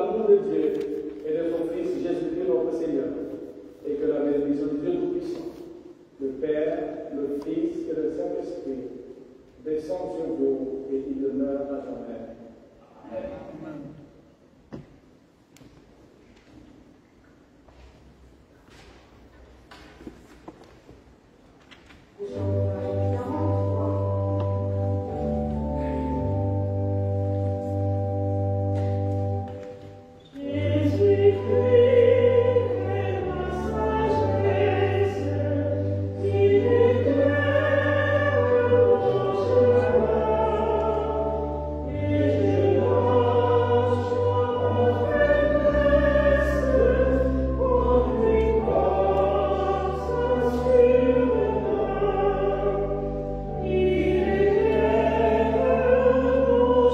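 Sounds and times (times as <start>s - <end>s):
choir singing a hymn: 22.2s - 56.9s
organ: 22.2s - 56.9s.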